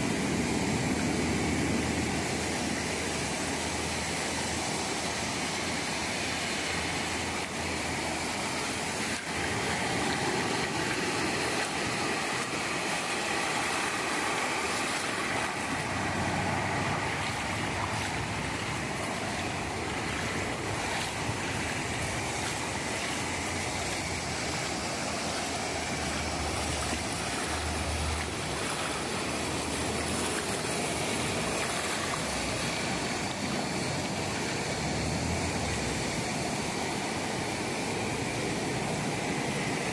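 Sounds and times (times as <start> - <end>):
small waves breaking on beach: 0.0 - 39.9.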